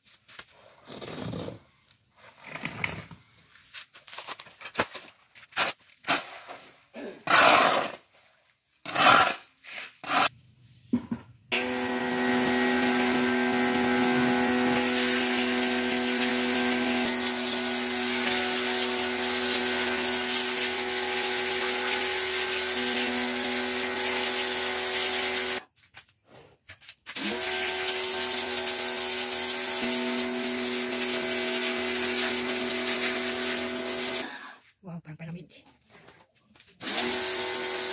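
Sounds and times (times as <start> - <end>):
scraping strokes: 8.9 - 10.3
pressure washer spraying: 11.6 - 25.6, 27.2 - 34.2, 36.8 - 37.9.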